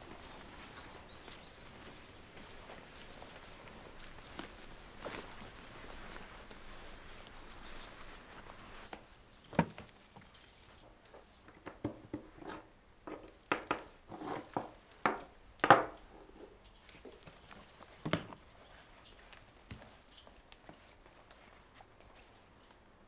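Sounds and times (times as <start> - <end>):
scraping on desk: 14.1 - 14.7.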